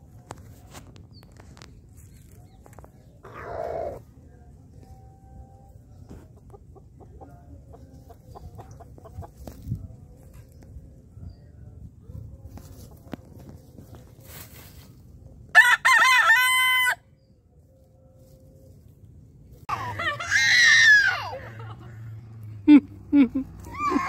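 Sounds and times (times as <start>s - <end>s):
chickens clucking: 2.2s - 10.7s
loud chicken squawk: 20.1s - 21.4s.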